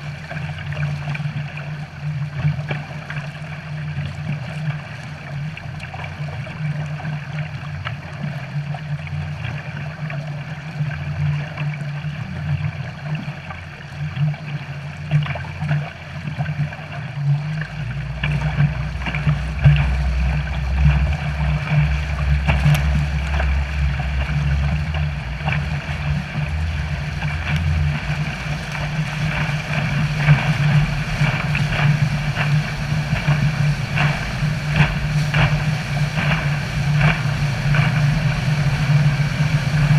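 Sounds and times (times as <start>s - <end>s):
boat engine running: 0.0s - 39.9s
water rushing and splashing: 0.0s - 39.9s
deep low rumble: 15.3s - 39.9s.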